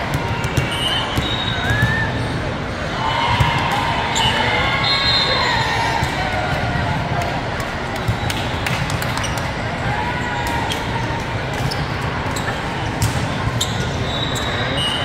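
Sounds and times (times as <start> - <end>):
volleyballs hit and bouncing: 0.0 - 2.7, 5.9 - 9.7, 10.4 - 14.0.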